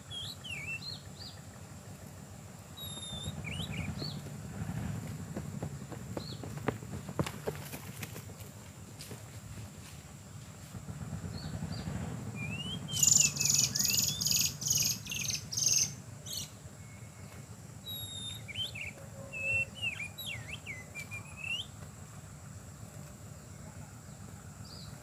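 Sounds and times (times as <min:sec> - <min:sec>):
birds calling with rasping notes: 0:00.0 - 0:08.5, 0:11.2 - 0:21.9
high insect drone: 0:00.0 - 0:25.0
bird whistles: 0:00.1 - 0:01.4, 0:02.8 - 0:04.2, 0:12.4 - 0:21.8.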